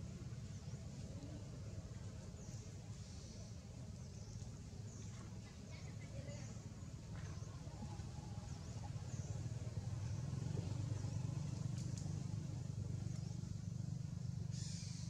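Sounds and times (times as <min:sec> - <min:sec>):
vehicle engine humming: 0:07.4 - 0:15.0.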